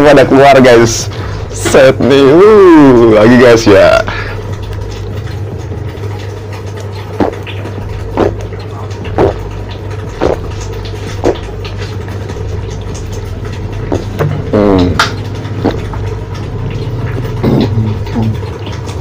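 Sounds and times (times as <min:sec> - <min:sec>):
steady low hum: 0:00.0 - 0:19.0
person gulping soda: 0:06.8 - 0:11.7, 0:13.8 - 0:16.1, 0:16.8 - 0:18.6.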